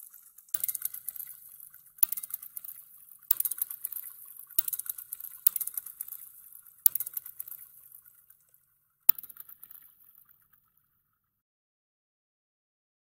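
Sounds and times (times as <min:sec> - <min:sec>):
sharp clicks with sizzling hiss: 0:00.0 - 0:08.5.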